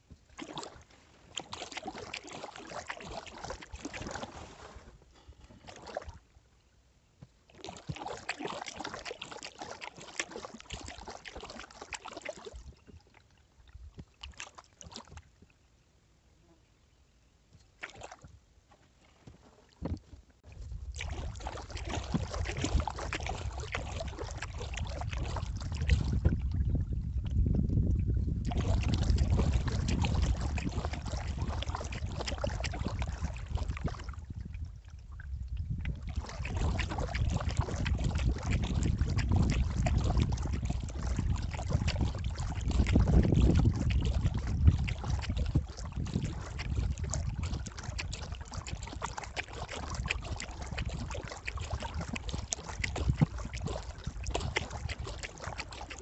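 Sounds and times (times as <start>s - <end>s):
paddle splashing water: 0.0s - 15.8s, 17.4s - 56.0s
wind rumble on microphone: 19.8s - 56.0s.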